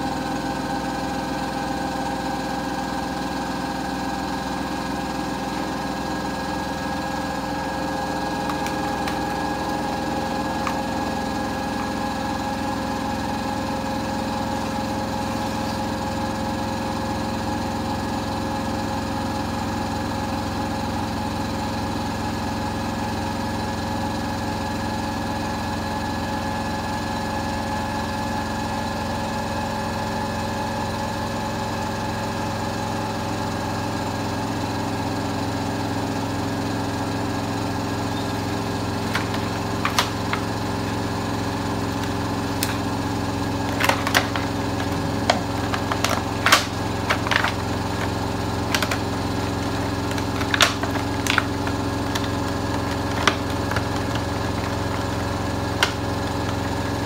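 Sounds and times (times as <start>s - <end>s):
washing machine humming: 2.5s - 17.8s, 37.5s - 57.0s.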